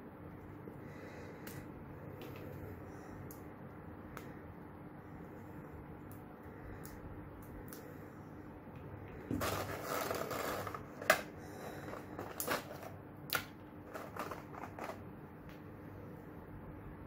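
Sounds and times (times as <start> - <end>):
plastic tray crinkling: 9.3 - 13.0, 13.8 - 15.0.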